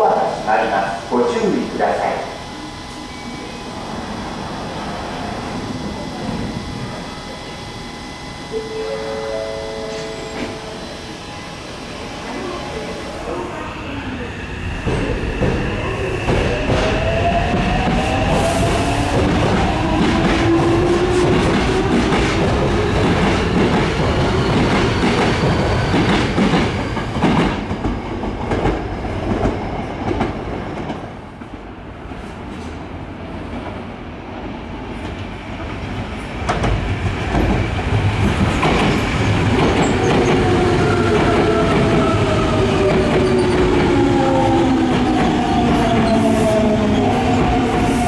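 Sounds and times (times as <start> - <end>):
train motor whine braking: 1.6 - 13.4
train wheels clattering over rails: 14.8 - 31.1, 36.4 - 48.0.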